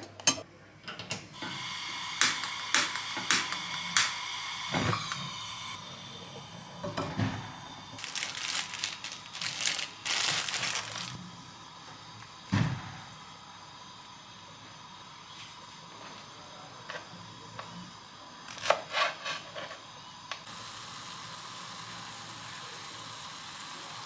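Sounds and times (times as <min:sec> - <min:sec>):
plastic packaging crinkling and tearing: 0:08.0 - 0:11.2.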